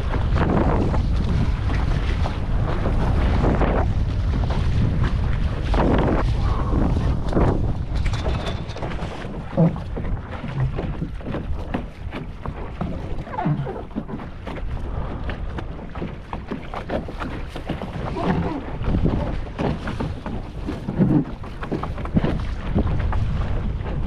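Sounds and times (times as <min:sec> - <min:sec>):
water splashing against hull: 0:00.0 - 0:24.0
wind buffeting microphone: 0:00.0 - 0:24.0.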